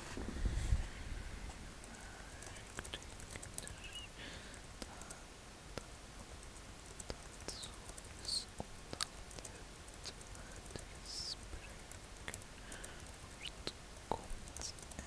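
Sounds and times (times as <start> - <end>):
small clicks and taps: 4.8 - 15.0.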